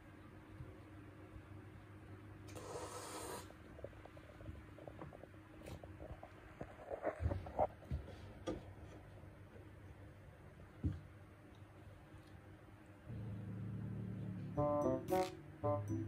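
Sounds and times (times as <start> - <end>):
cat hissing: 2.5 - 3.6.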